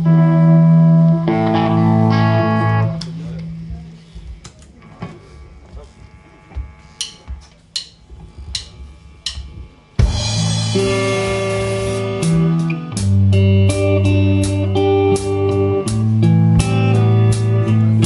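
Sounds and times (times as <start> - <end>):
rock band playing: 0.0 - 4.3, 10.0 - 18.0
drumstick count-in ticks: 7.0 - 9.5.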